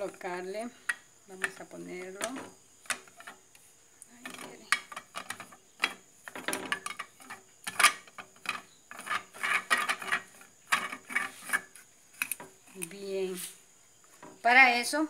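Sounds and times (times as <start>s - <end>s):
plastic threads clicking and scraping: 0.8s - 3.4s, 4.0s - 13.0s.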